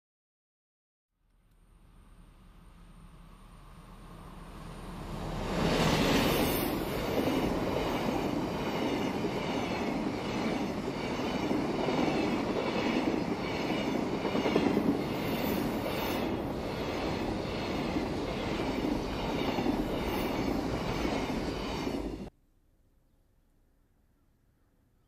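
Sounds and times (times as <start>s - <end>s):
diesel locomotive passing: 1.7s - 22.3s
train wheels rolling on rails: 2.8s - 22.3s.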